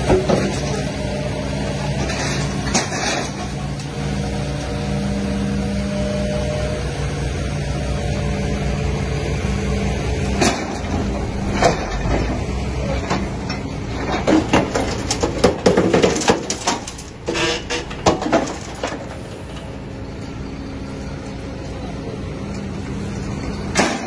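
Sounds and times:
excavator engine running: 0.0s - 24.0s
metal clanks and crunches: 2.0s - 3.8s, 10.4s - 19.8s, 23.7s - 24.0s.

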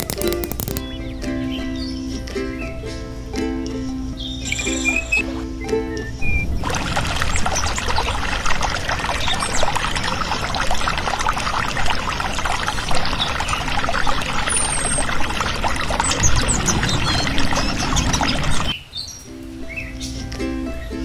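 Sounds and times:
water stream splashing into bowl: 0.0s - 0.8s, 6.5s - 18.8s.

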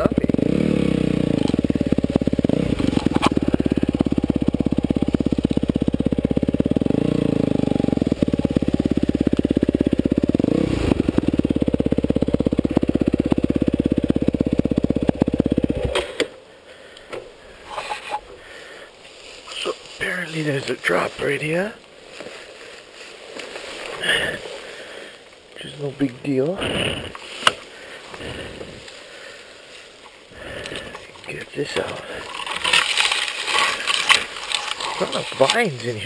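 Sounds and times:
dirt bike engine running: 0.0s - 16.2s, 19.5s - 36.0s
rustling: 17.5s - 26.2s, 26.8s - 36.0s.

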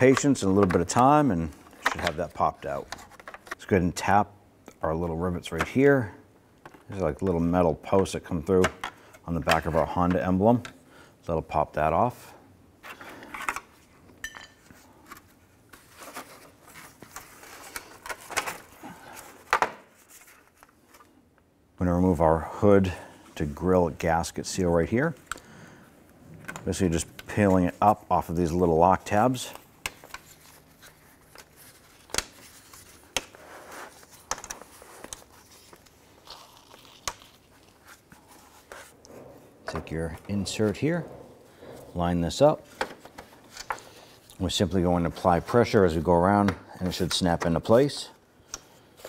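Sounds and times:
plastic parts clicking and knocking: 2.8s - 3.6s.

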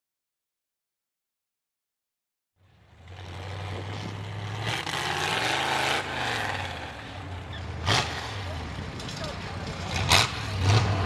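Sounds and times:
truck engine revving: 2.9s - 11.0s.

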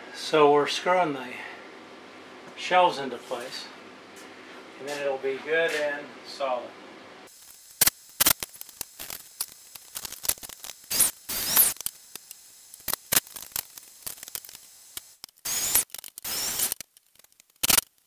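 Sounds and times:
drill driving screws into wood: 10.9s - 11.8s, 15.4s - 16.8s, 17.6s - 17.8s.

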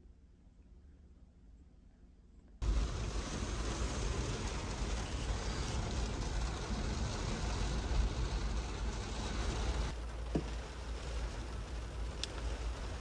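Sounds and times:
heavy rain on vehicle roof: 2.6s - 13.0s
strong wind buffeting vehicle: 2.6s - 13.0s.

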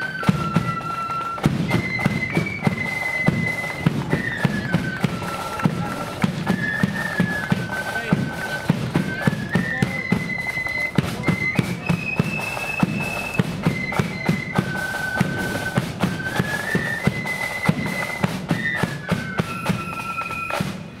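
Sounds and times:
flutes playing in unison: 0.0s - 21.0s
drum strikes: 0.2s - 20.8s.

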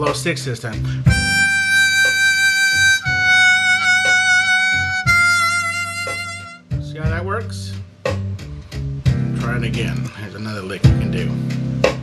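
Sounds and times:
blues backing track: 0.0s - 12.0s
blues harmonica long notes: 0.9s - 6.8s.

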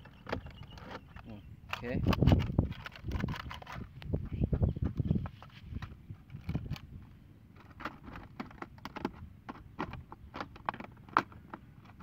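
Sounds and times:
plastic bottles clicking and crackling: 0.1s - 4.1s.

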